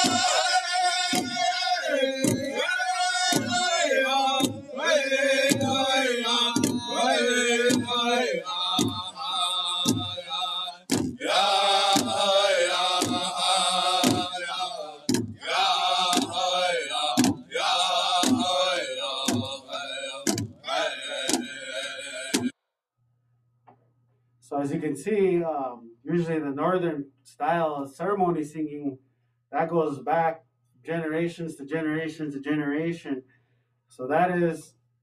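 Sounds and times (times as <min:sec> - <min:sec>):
men chanting a ceremonial song: 0:00.0 - 0:22.5
large drum beating steadily: 0:10.9 - 0:14.4, 0:15.1 - 0:17.6, 0:18.2 - 0:18.6.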